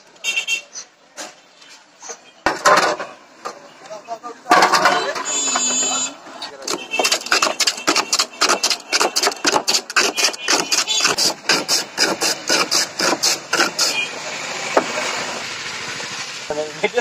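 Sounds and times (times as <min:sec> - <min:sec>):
ice scraping over blade: 0:05.7 - 0:15.4.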